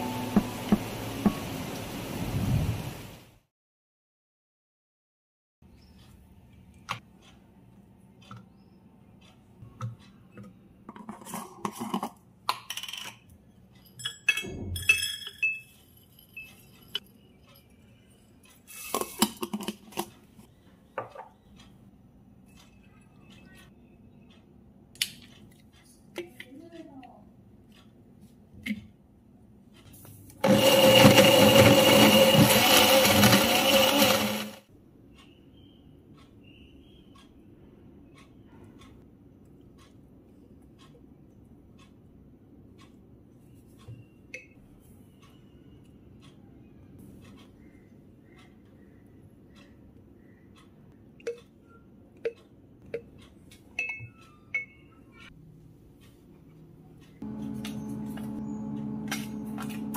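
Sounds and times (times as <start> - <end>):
blender running: 30.4 - 34.6, 57.2 - 59.9
glass jar tapping on ramekins: 53.8 - 54.8.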